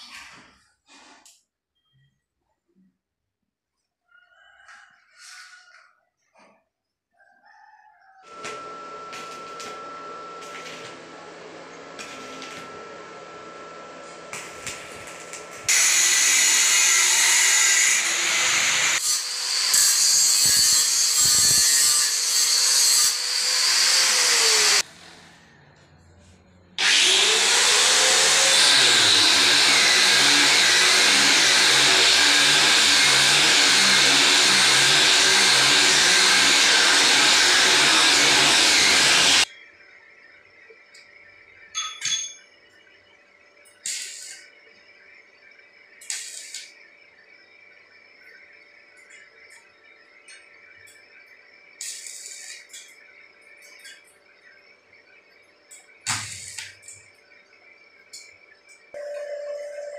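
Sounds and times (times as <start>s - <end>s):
angle grinder on metal: 14.3s - 24.8s, 26.8s - 39.5s, 46.0s - 46.7s.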